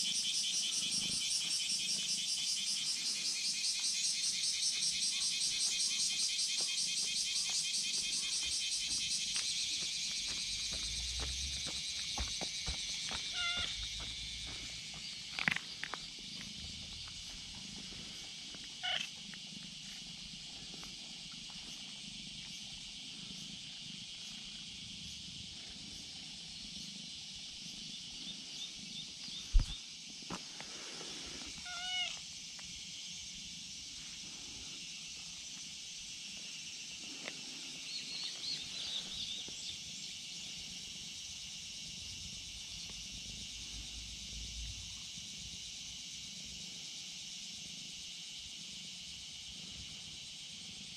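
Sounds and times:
high insect drone: 0:00.0 - 0:50.9
cat meowing: 0:13.3 - 0:13.7, 0:18.8 - 0:19.1, 0:31.6 - 0:32.2.

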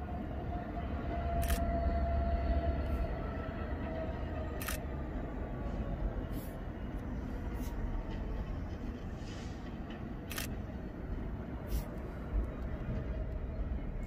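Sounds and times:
diesel locomotive rumbling: 0:00.0 - 0:14.0.

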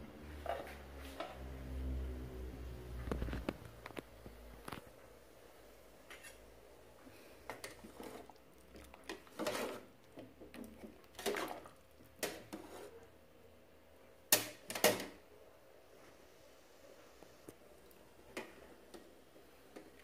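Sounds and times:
metal ladle scraping a pot: 0:06.1 - 0:06.4, 0:07.6 - 0:08.3, 0:09.1 - 0:09.9, 0:11.2 - 0:13.0.

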